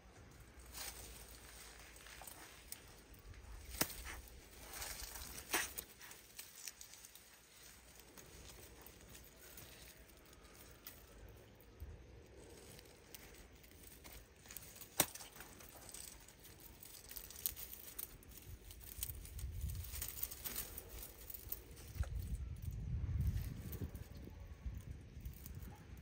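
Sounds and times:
rustling in dry leaves: 0.0 - 26.0
wind rumble on microphone: 18.4 - 26.0.

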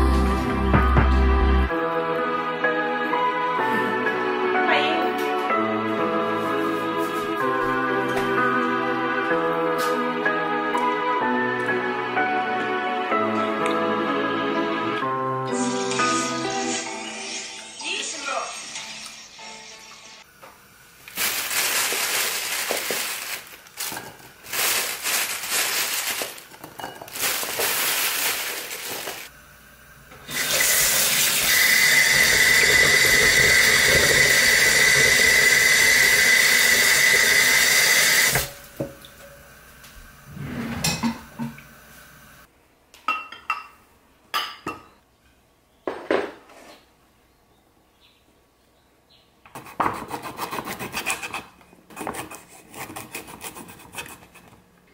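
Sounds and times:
tap water running into bowl: 30.3 - 38.6.

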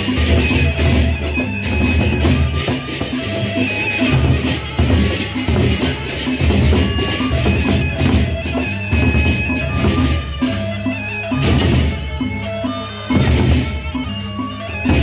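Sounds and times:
barrel drums beating: 0.0 - 10.6
cymbals clashing: 0.0 - 15.0.

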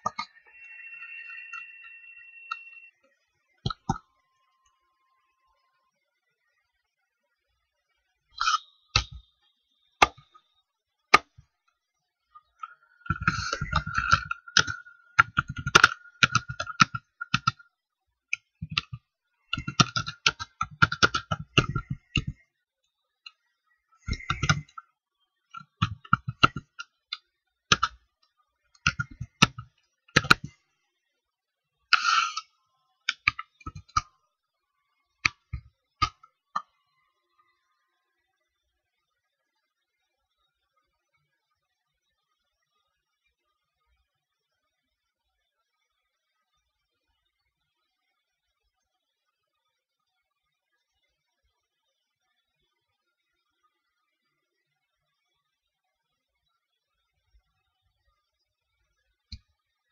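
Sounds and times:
typing on a keyboard: 13.0 - 17.6, 18.6 - 22.4, 24.1 - 24.8, 25.6 - 26.9, 27.7 - 28.0, 28.8 - 30.5, 33.1 - 34.1.

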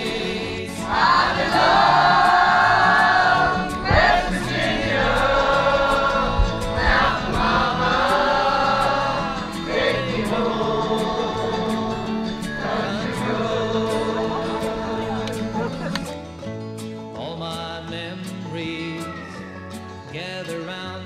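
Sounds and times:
voices singing held notes: 0.0 - 16.1.

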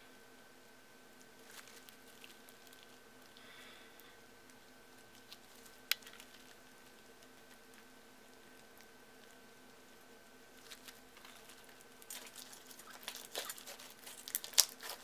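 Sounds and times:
slime clicking and crackling: 5.0 - 9.4, 10.5 - 15.0.

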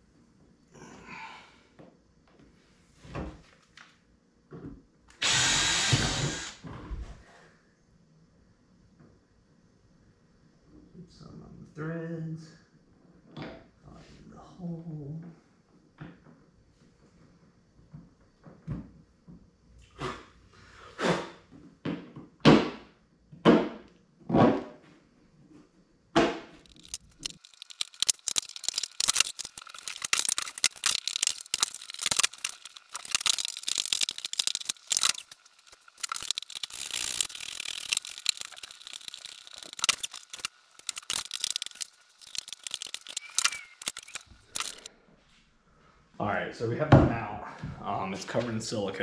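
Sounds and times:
tools clicking and rattling: 26.6 - 44.9.

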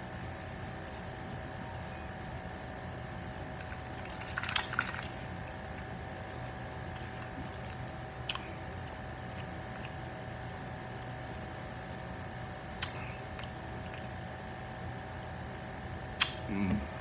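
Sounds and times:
steady room hum: 0.0 - 17.0.

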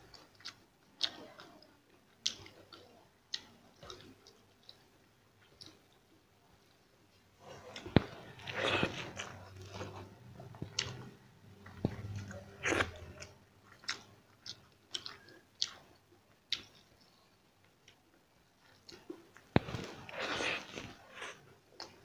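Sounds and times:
man chewing: 0.1 - 1.2, 7.5 - 22.0.

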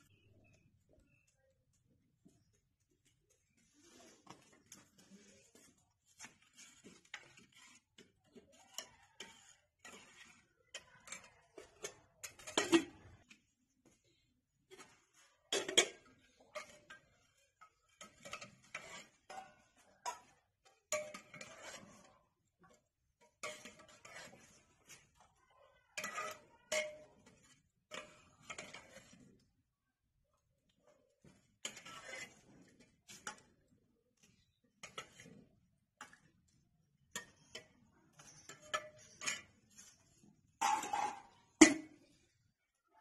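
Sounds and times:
metal kitchenware clinking: 5.6 - 13.3, 14.7 - 25.4, 26.0 - 29.3, 34.2 - 42.2.

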